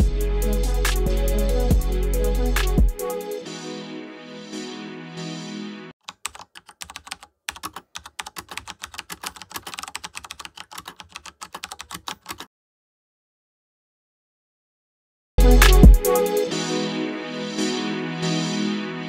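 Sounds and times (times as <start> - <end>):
music: 0.0 - 5.9, 15.4 - 19.0
rapid irregular clicks: 6.1 - 12.4.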